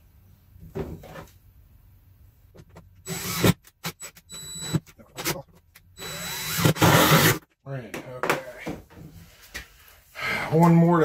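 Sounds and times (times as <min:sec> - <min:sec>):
drill driving screw into wood: 0:03.0 - 0:04.8, 0:06.0 - 0:07.5.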